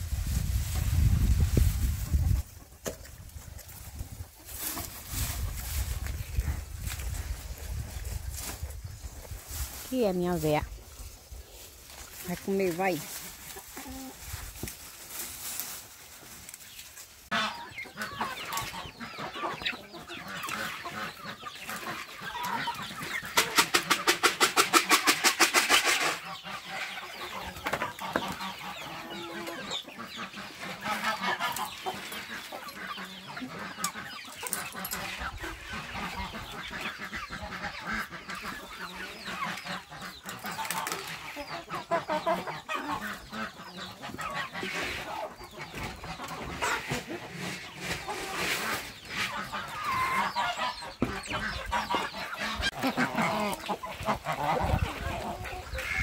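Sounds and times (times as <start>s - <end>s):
chickens clucking: 0.1s - 56.0s
chicken rapid loud calls: 22.2s - 26.4s.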